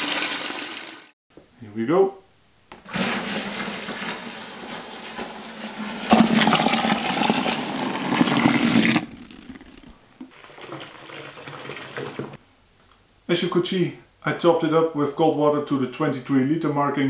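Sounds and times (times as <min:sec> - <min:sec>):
water pouring into bucket: 0:00.0 - 0:01.1, 0:02.8 - 0:12.4.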